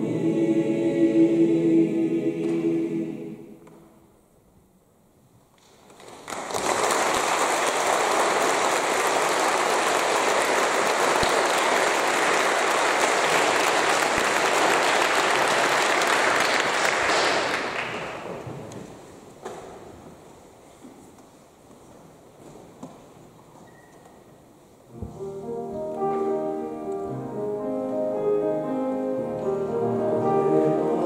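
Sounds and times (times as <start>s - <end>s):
audience applauding: 5.6s - 18.4s.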